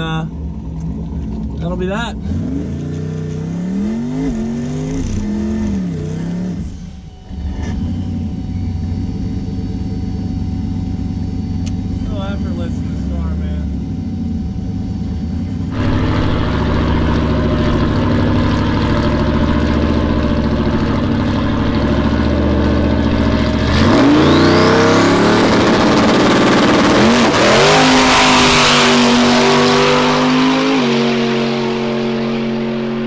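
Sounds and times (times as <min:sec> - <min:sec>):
race car engine accelerating: 0:00.7 - 0:10.4, 0:11.6 - 0:33.0.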